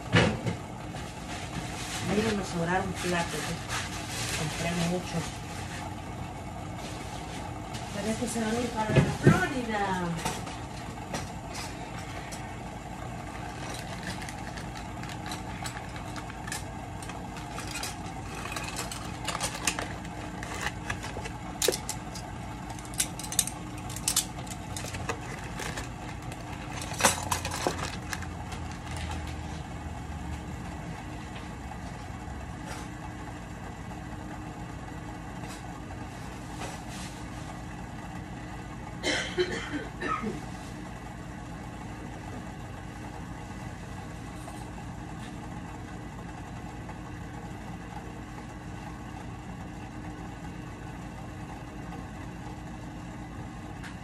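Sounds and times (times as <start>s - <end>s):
steady low hum: 0.0s - 54.0s
clicks taps and rustling: 13.4s - 29.4s.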